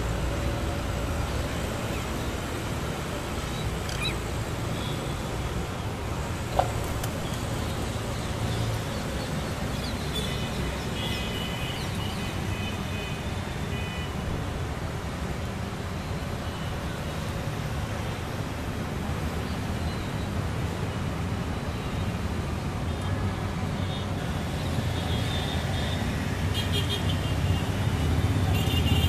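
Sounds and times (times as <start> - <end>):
road traffic rumble: 0.0 - 29.0
bird calls: 3.5 - 4.2.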